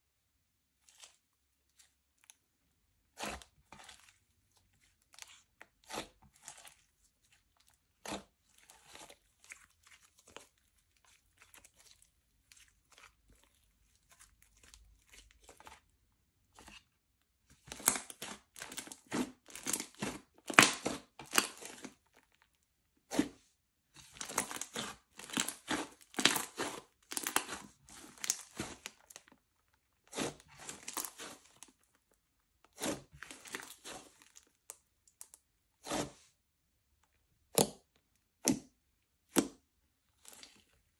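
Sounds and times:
slime crackling and popping: 17.6s - 22.4s, 24.1s - 29.4s, 30.0s - 31.9s.

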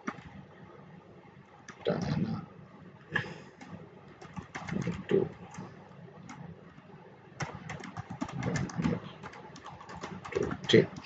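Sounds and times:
computer keyboard typing: 3.4s - 6.5s, 7.4s - 11.0s.

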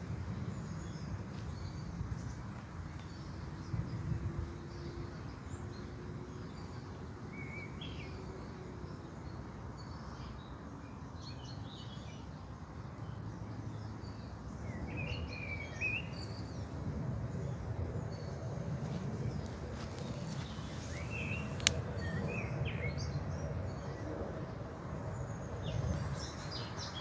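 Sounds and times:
birds chirping and singing: 19.4s - 24.0s.

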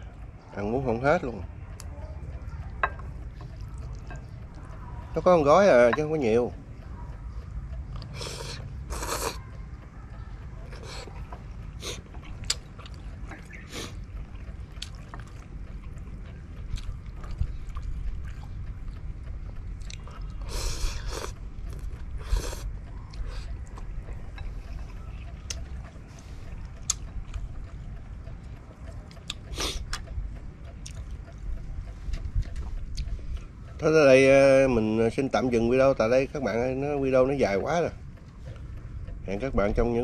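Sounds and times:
chopsticks clicking on bowl: 1.8s - 6.5s
person slurping noodles: 8.2s - 9.4s.

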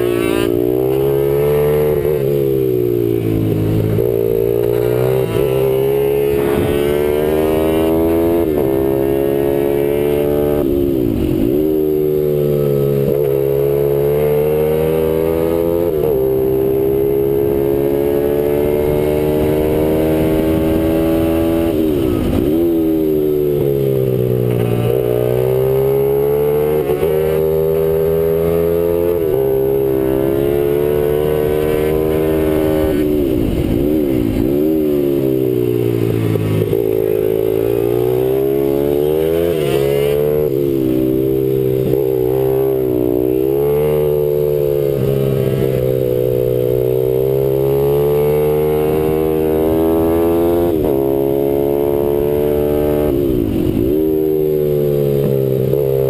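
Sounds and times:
motorbike engine revving: 0.0s - 56.0s.

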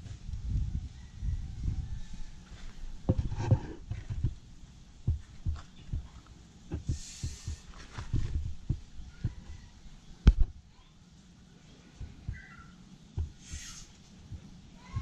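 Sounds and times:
rustling hiss: 1.9s - 10.6s, 11.2s - 15.0s.

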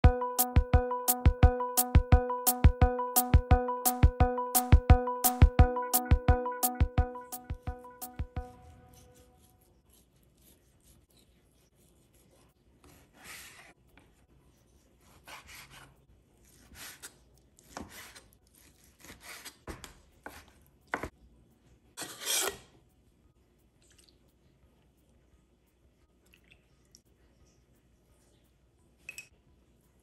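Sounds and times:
knife scraping raw fish: 22.0s - 22.7s.

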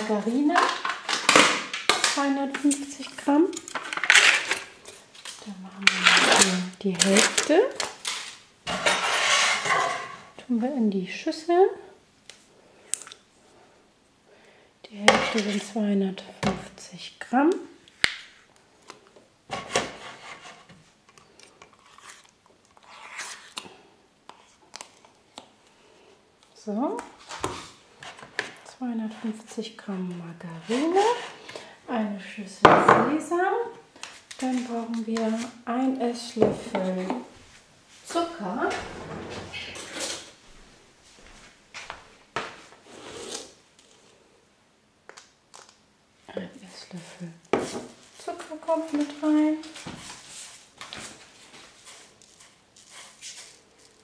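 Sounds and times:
margarine squishing and scraping: 20.0s - 25.7s, 46.8s - 54.0s.

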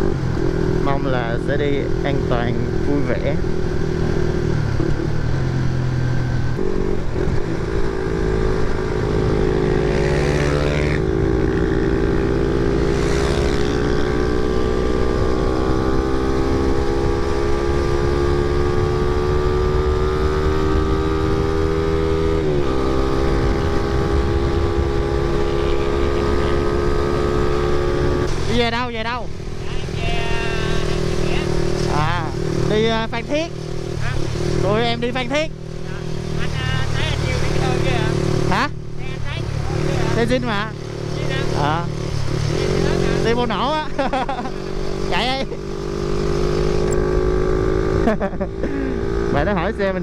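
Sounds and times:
motorcycle engine running: 0.0s - 50.0s
wind noise: 3.4s - 28.6s.

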